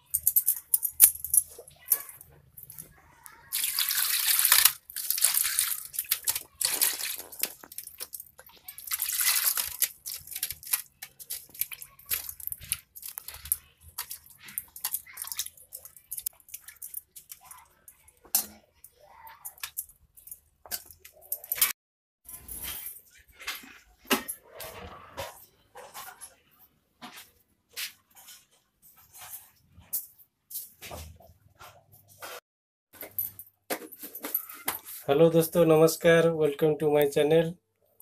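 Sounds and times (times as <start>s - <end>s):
water splashing in a steel bowl: 3.5s - 15.4s.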